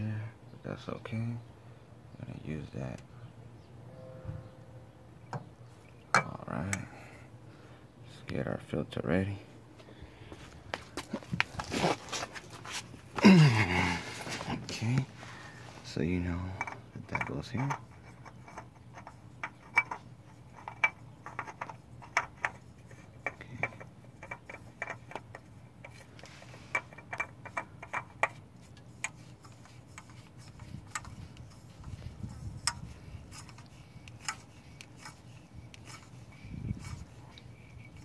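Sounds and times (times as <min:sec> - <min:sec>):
oil filter clicking as turned: 0:16.6 - 0:38.0.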